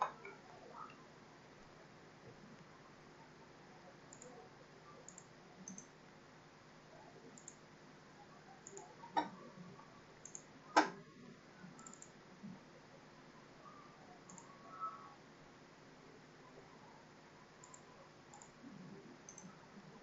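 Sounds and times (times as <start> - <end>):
computer mouse clicks: 4.1 - 4.4, 5.0 - 5.9, 7.4 - 7.6, 8.6 - 9.4, 10.2 - 11.0, 11.8 - 12.1, 14.3 - 14.5, 17.6 - 18.6, 19.3 - 19.6
faint ticks: 4.1 - 4.4, 5.0 - 5.9, 7.4 - 7.6, 8.6 - 8.9, 10.2 - 10.5, 11.8 - 12.6, 14.3 - 14.5, 19.2 - 19.6.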